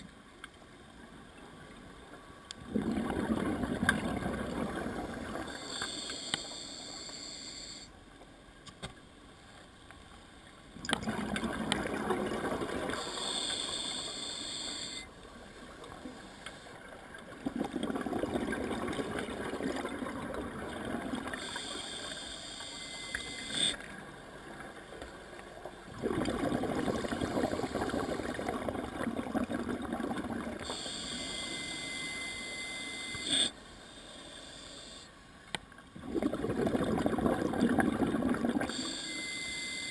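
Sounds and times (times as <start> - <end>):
gurgling exhaust bubbles: 2.6 - 5.5, 17.4 - 21.4, 25.9 - 30.7, 36.0 - 38.8
regulator inhale hiss: 5.5 - 7.9, 13.0 - 15.1, 21.4 - 23.8, 30.6 - 35.2, 38.7 - 39.8.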